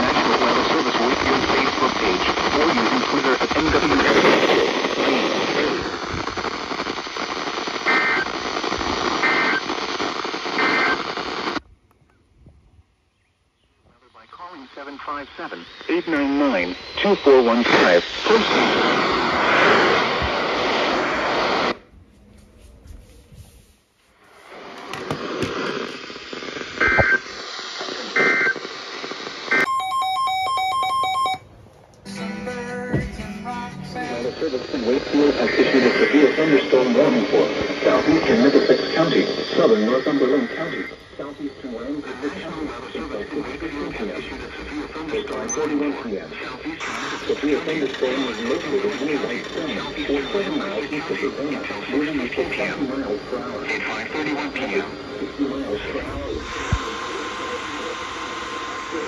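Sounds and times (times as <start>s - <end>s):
static-laden radio broadcast: 0.0s - 11.6s, 13.8s - 21.9s, 24.1s - 29.7s, 32.1s - 59.0s
lower multi-pitch alarm tone: 29.5s - 31.5s.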